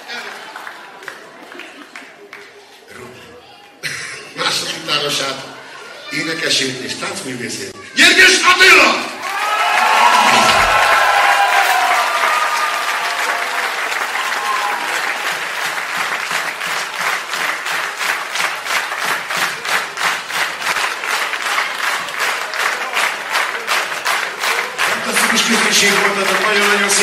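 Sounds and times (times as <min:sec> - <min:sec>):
crowd applauding: 0:00.0 - 0:02.9, 0:08.6 - 0:27.0
rhythmic clapping in unison: 0:09.3 - 0:27.0.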